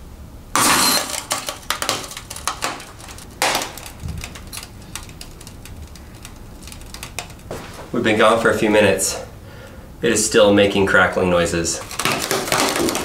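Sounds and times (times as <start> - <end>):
broken glass crackling: 0.6 - 7.5.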